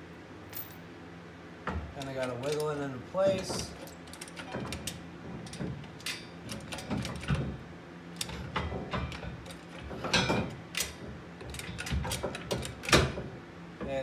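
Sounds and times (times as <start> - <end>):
metal clicks knocks and scrapes: 1.7 - 7.6, 8.2 - 13.3.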